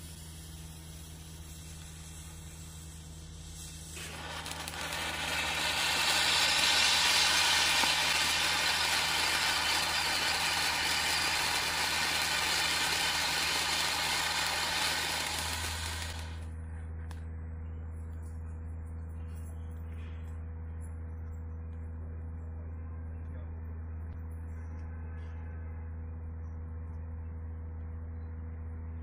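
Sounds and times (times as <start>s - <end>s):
firework fountain hissing: 0.0s - 16.5s.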